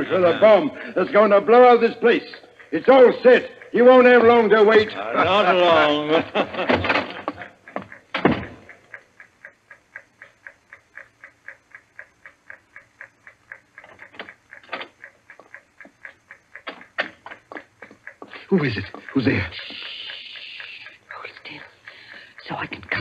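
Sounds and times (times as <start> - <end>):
clock-like ticking: 0.0 - 23.0
sharp knocks: 7.8 - 8.7.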